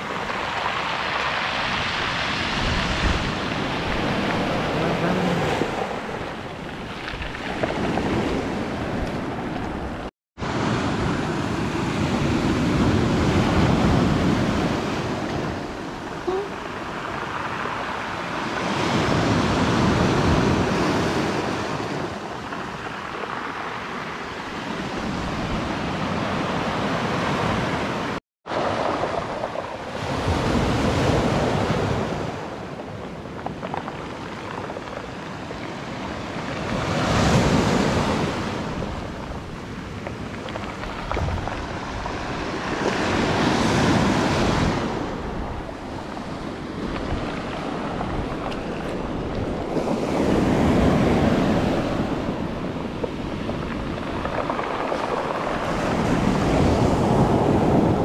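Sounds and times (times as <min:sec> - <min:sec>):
sea waves breaking on beach: 0:00.0 - 0:58.0.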